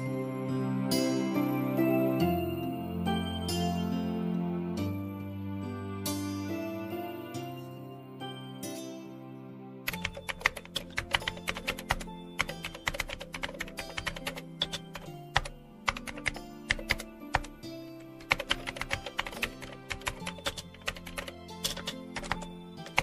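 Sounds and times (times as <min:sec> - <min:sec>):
background music: 0:00.0 - 0:23.0
keyboard typing: 0:09.9 - 0:23.0.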